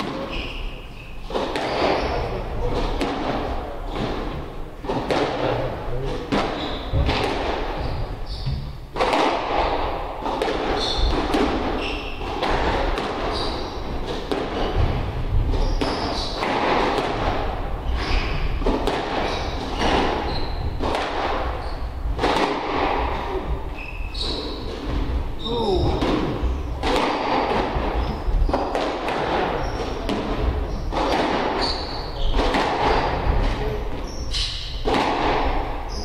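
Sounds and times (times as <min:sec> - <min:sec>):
shoes squeaking on wooden floor: 0:00.0 - 0:09.6, 0:10.3 - 0:36.0
squash ball hits: 0:00.0 - 0:36.0.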